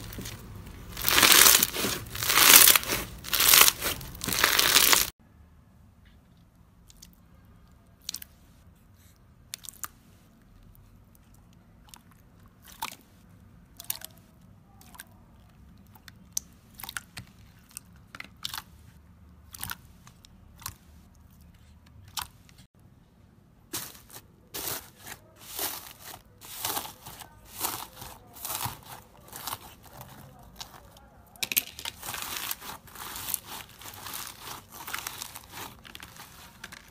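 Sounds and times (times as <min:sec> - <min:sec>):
slime crisp crackles and pops: 0:01.0 - 0:05.1.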